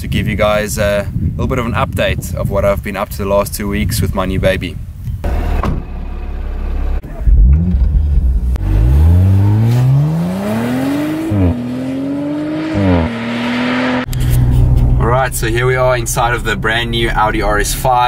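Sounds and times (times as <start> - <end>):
car engine revving and accelerating: 6.6 - 15.0.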